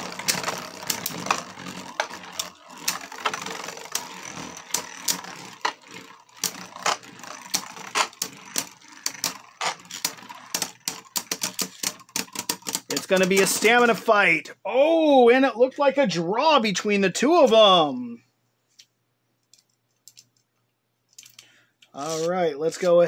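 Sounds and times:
spinning tops clicking together: 0.0 - 14.0
spinning tops whirring: 0.0 - 14.3.

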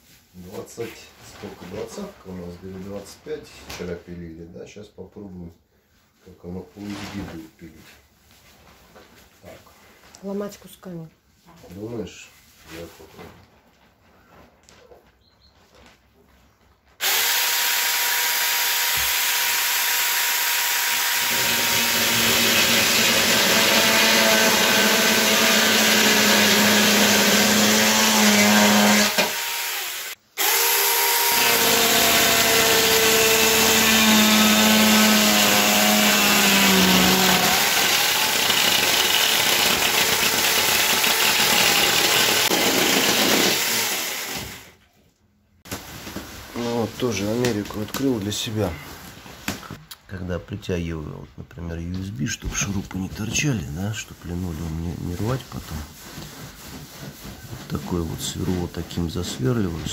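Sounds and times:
electric chainsaw cutting wood: 17.0 - 44.8.

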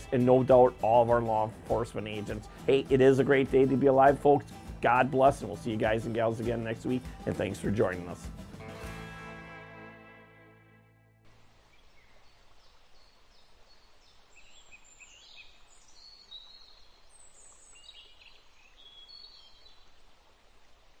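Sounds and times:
outdoor ambience hiss: 11.2 - 21.0.

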